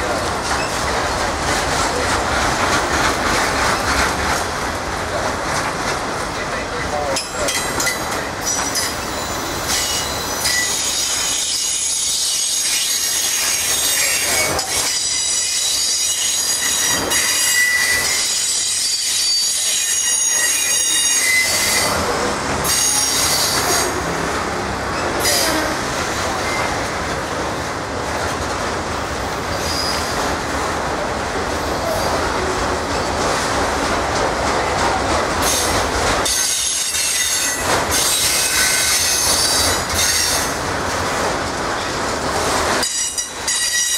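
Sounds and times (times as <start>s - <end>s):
train wheels rolling on rails: 0.0s - 43.9s
train wheels squealing: 7.4s - 22.0s, 22.6s - 24.0s, 29.5s - 30.2s, 35.4s - 40.5s, 42.8s - 43.9s.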